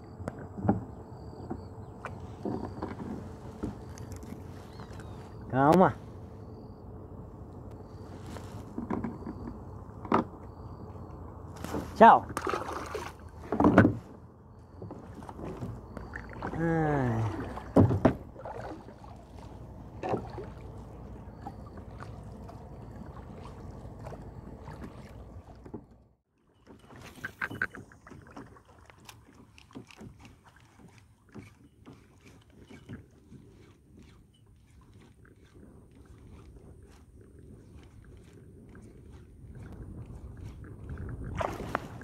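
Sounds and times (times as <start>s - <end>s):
water sloshing around kayak: 0.0s - 42.0s
knocks against kayak hull: 17.7s - 18.3s.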